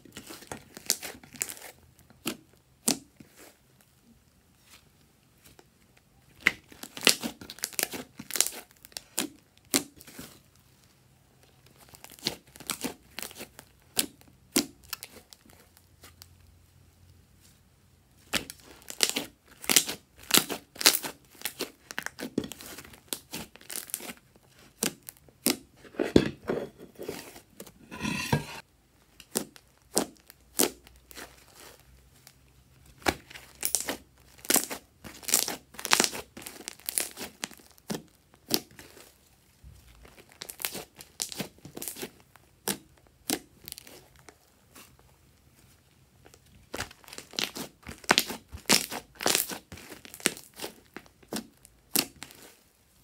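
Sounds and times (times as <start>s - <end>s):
slime squelch: 29.2s - 52.8s.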